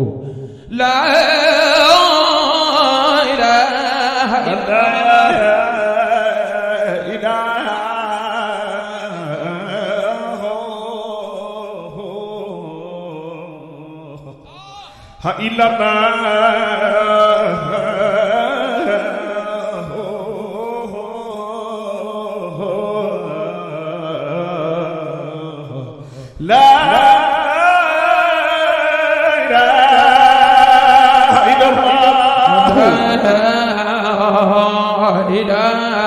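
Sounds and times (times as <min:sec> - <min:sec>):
man singing a religious chant: 0:00.0 - 0:36.0.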